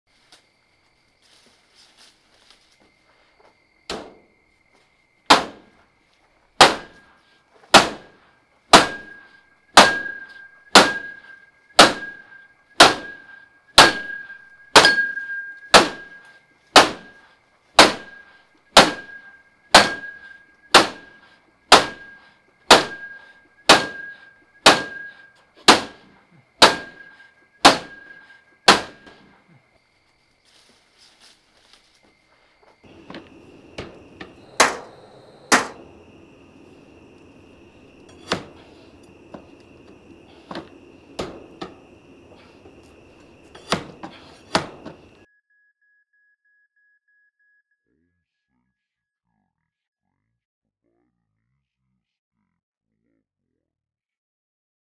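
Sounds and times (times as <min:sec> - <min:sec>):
bat clanging on metal mesh: 0:08.8 - 0:16.3, 0:37.3 - 0:39.6.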